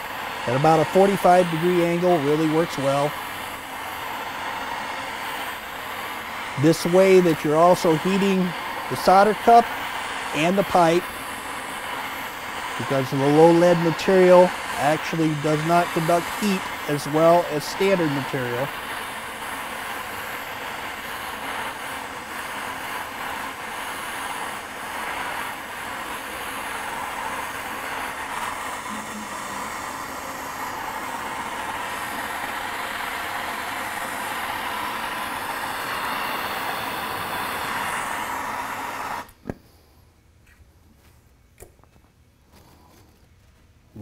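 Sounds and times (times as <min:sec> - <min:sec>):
gas torch flame hissing: 0:00.0 - 0:40.0.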